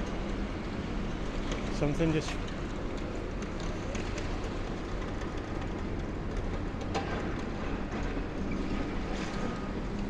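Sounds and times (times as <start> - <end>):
excavator engine and hydraulics rumble: 0.0 - 10.0.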